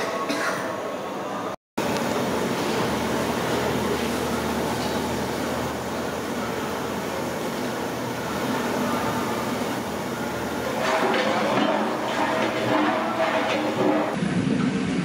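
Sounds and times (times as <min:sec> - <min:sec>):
oil sizzling and bubbling: 0:09.4 - 0:14.3.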